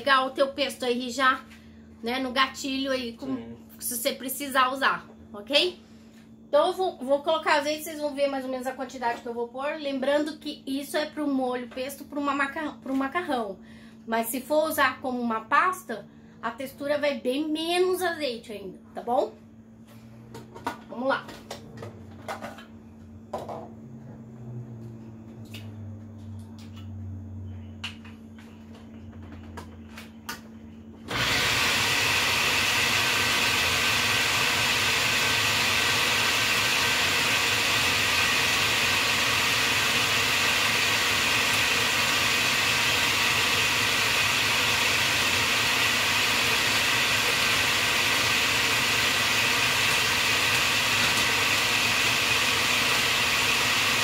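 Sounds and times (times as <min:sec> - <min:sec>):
blender running: 0:31.1 - 0:54.0.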